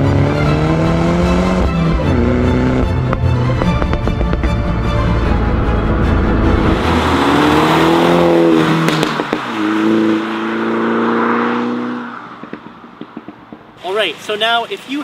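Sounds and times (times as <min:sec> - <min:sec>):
background music: 0:00.0 - 0:08.8
car exhaust accelerating: 0:00.0 - 0:13.8.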